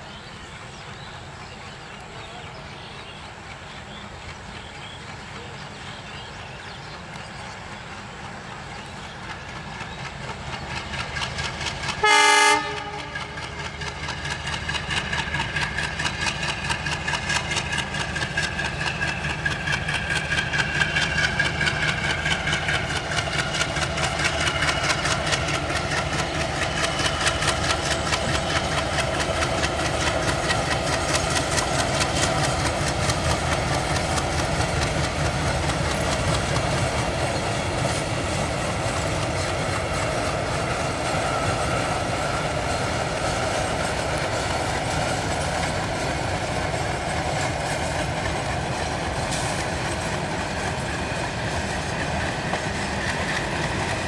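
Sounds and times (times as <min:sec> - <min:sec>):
diesel locomotive engine and wheels: 0:00.0 - 0:54.0
wheels clicking over rail joints: 0:03.1 - 0:12.0, 0:13.1 - 0:54.0
train horn blast: 0:12.0 - 0:13.5.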